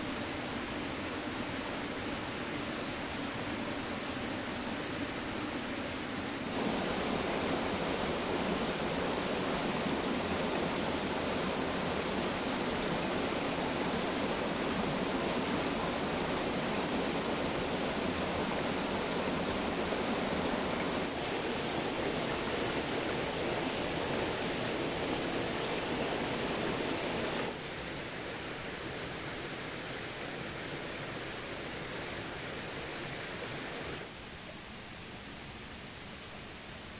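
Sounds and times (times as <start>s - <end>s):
waterfall splashing over rocks: 0.1s - 27.8s.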